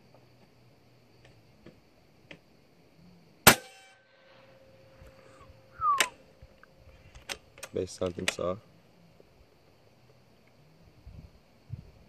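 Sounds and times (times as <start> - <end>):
air rifle shot: 3.4 - 4.0.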